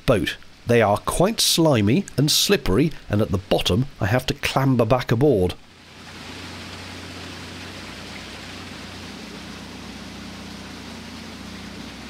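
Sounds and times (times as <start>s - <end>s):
hiss of wind and water: 0.0s - 12.0s
boat engine humming: 4.4s - 12.0s.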